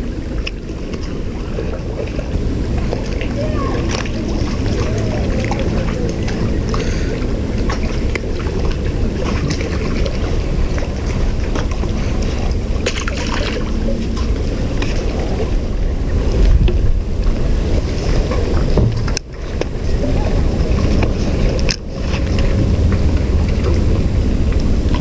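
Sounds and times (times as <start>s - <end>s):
fish splashing into water: 0.0s - 16.1s
water lapping against pier: 0.0s - 25.0s
wind buffeting microphone: 0.0s - 25.0s.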